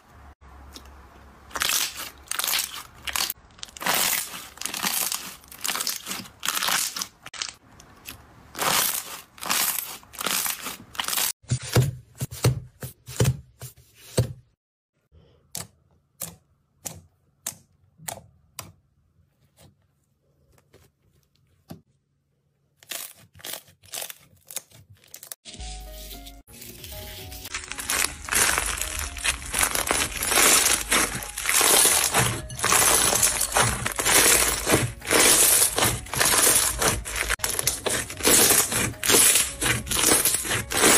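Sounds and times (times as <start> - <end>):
music: 25.5 - 40.9
slime squishing and popping: 27.7 - 40.9.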